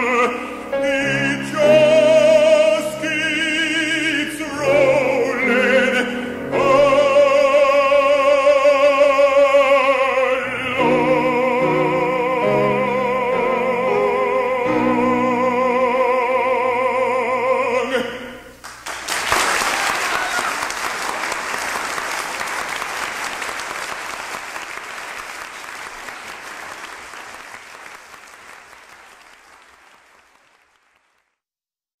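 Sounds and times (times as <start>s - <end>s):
audience applause: 18.6s - 31.4s.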